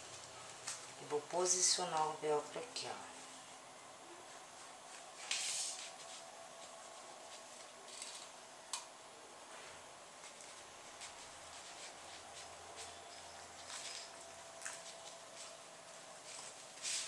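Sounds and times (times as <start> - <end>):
hands rustling fabric: 4.2 - 8.2, 9.5 - 17.0.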